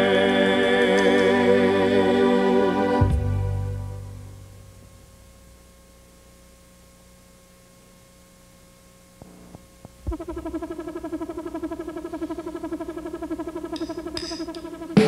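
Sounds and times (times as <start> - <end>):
song: 0.0 - 4.6
faint electrical hum: 0.0 - 15.0
synthesizer music with pulsing beat: 10.1 - 15.0.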